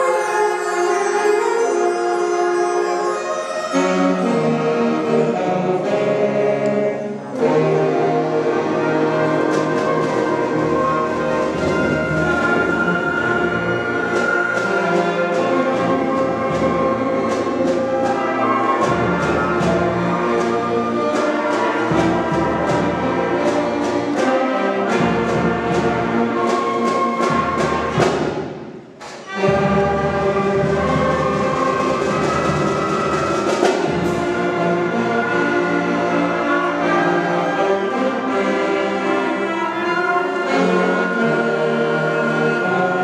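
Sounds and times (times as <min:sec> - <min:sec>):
concert band playing: 0:00.0 - 0:43.0
percussion beat: 0:09.3 - 0:36.2.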